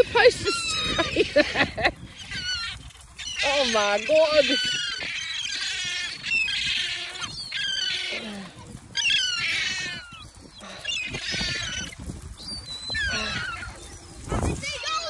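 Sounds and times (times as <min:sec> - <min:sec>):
gulls squawking: 0:00.0 - 0:15.0.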